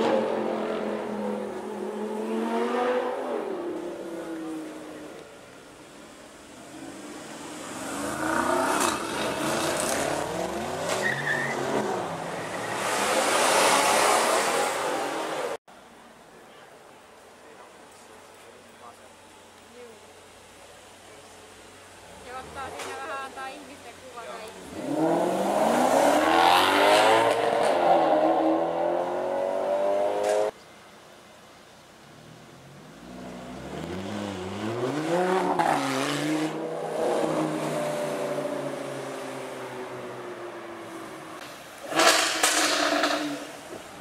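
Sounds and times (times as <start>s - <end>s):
car engine accelerating hard: 24.6s - 30.5s
car speeding by: 24.6s - 30.5s.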